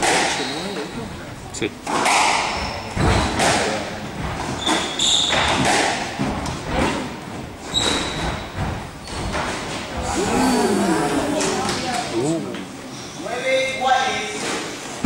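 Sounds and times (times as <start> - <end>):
sneakers squeaking on wooden floor: 0.2 - 1.1, 2.4 - 3.4, 4.2 - 10.2
squash ball thuds: 1.9 - 7.1.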